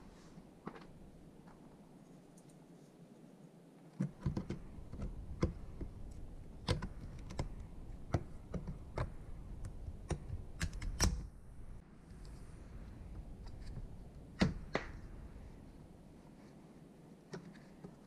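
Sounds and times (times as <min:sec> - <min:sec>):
plastic clicks and light knocks: 0:04.0 - 0:11.2.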